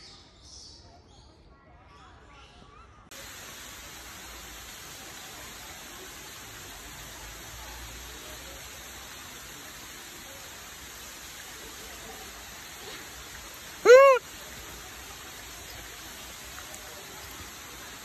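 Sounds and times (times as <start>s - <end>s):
background hiss: 3.1s - 18.0s
macaque coo call: 13.8s - 14.3s.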